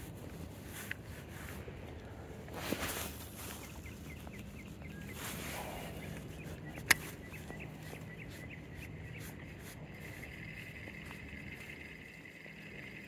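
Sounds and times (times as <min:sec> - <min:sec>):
soft rush: 0:00.0 - 0:13.0
steady low hum: 0:00.0 - 0:13.0
small animal chirping: 0:03.4 - 0:13.0.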